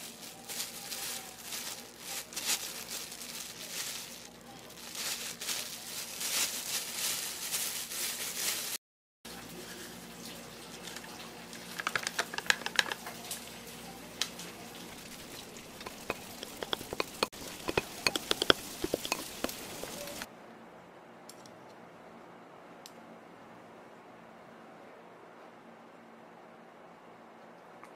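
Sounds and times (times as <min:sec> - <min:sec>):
plastic bag crinkling: 0:00.0 - 0:08.8, 0:14.6 - 0:20.3
spoon stirring rice: 0:11.9 - 0:13.0, 0:14.7 - 0:20.3
rice paddle tapping bowl: 0:12.0 - 0:13.0, 0:14.9 - 0:20.3.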